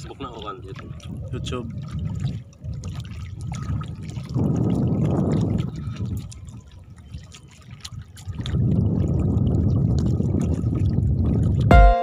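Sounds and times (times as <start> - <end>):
water splashing against boat: 0.0 - 12.0.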